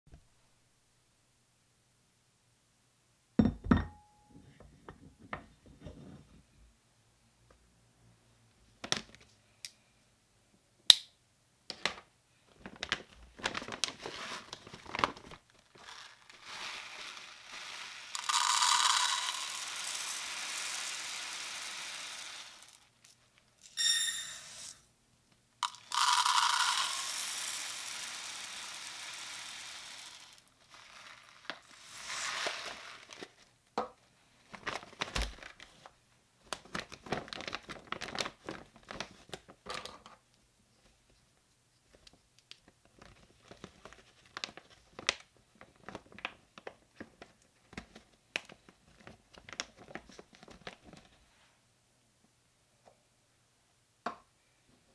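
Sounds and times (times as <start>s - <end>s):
cup and pot clinking: 3.4s - 4.2s, 18.2s - 20.0s, 25.6s - 27.1s
plastic bag rustling: 12.5s - 23.0s, 29.4s - 33.5s, 34.4s - 35.9s, 36.5s - 39.6s
rice pouring into metal pot: 15.8s - 22.9s, 23.6s - 24.8s, 25.6s - 33.3s.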